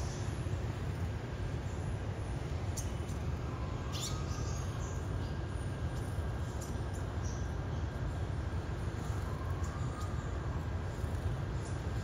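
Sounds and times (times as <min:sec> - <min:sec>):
high bird chirps: 0:03.8 - 0:05.0.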